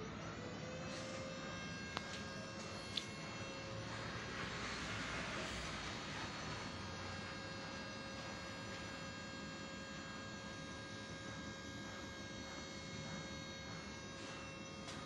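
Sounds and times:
electrical hum and whine: 0.0s - 15.0s.

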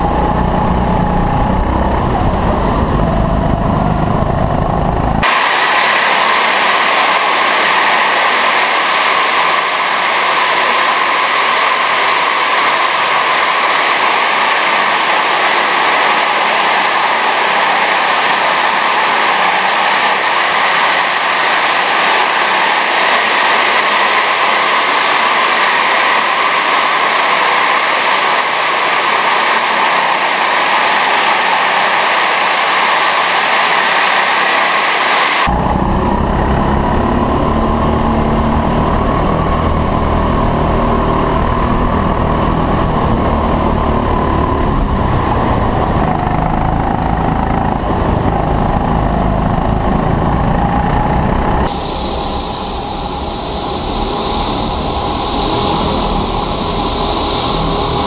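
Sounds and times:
loud steady hiss: 51.7s - 58.0s.

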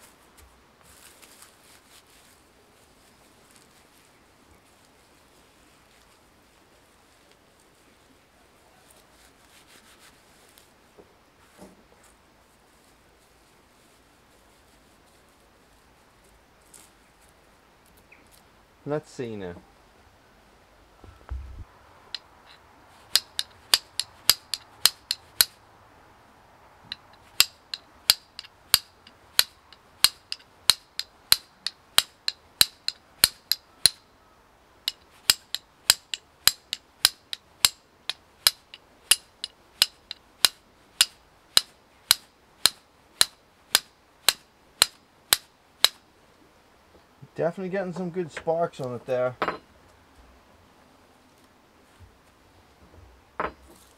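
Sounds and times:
fire steel striking flint: 21.2s - 25.6s, 26.9s - 34.1s, 34.8s - 46.0s, 49.4s - 49.7s.

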